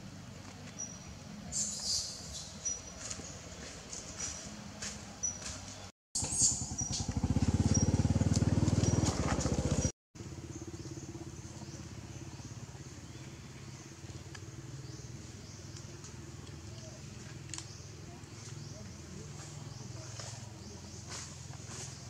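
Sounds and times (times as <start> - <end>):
steady engine hum: 0.0 - 22.0
motorcycle engine running: 4.8 - 22.0.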